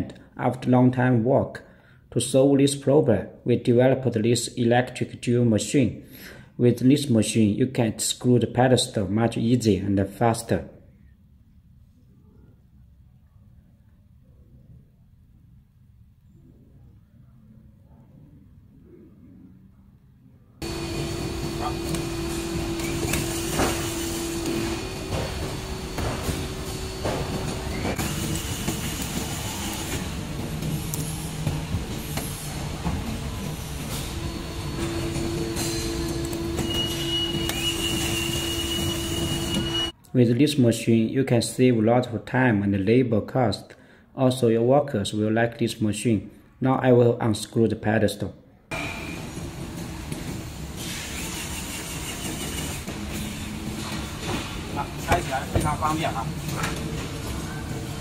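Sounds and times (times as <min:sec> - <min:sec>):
cordless drill whine: 0:20.6 - 0:30.0, 0:34.1 - 0:39.9.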